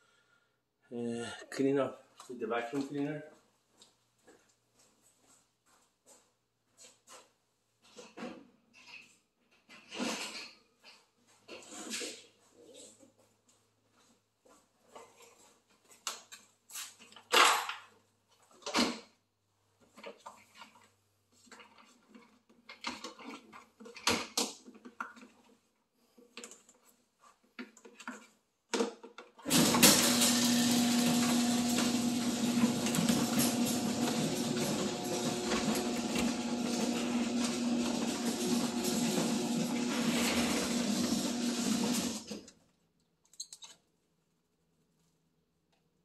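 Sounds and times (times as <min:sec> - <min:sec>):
vacuum cleaner running: 0:29.5 - 0:42.3.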